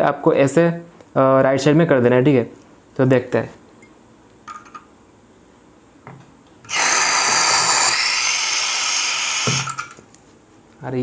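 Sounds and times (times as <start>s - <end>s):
gas hissing loudly: 6.6s - 10.0s.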